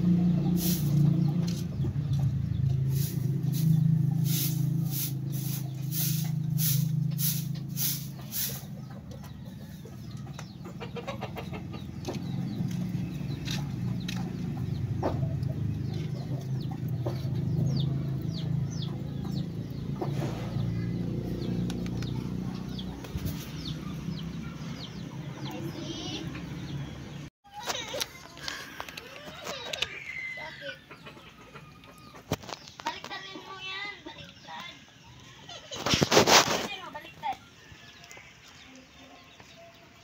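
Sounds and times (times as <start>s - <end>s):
chickens clucking: 0.0s - 40.0s
broom sweeping concrete: 0.4s - 8.8s, 35.8s - 37.1s.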